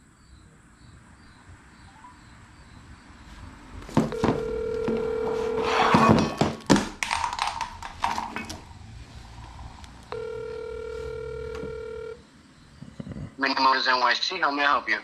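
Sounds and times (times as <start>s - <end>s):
telephone ringback tone: 4.0s - 6.4s, 10.1s - 12.2s.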